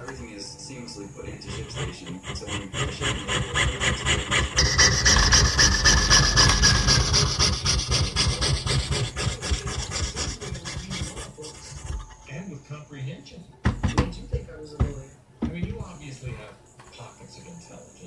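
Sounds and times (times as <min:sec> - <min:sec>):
saw blade rasping through metal: 0:01.3 - 0:12.3.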